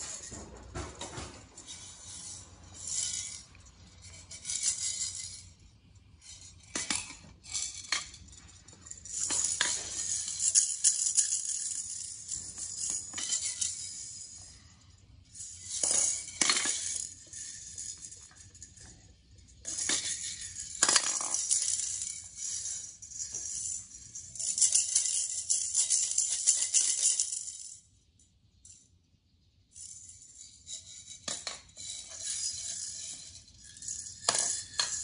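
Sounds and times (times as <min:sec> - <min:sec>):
maraca rattling: 0:00.0 - 0:14.6, 0:19.6 - 0:27.8.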